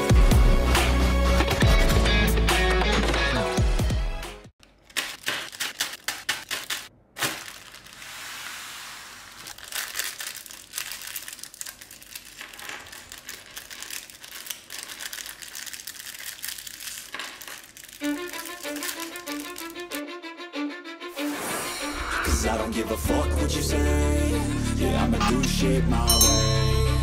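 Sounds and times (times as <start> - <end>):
music: 0.0 - 4.5, 18.0 - 27.0
packaging crinkling and rustling: 4.6 - 20.0.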